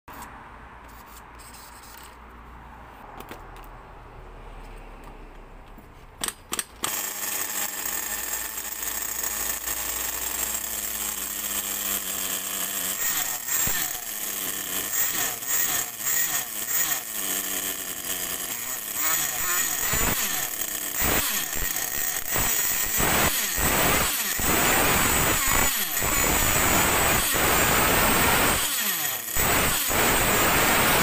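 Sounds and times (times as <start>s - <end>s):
nitro engine bursts: 6.5s - 31.0s
rc car engine buzzing: 6.8s - 31.0s.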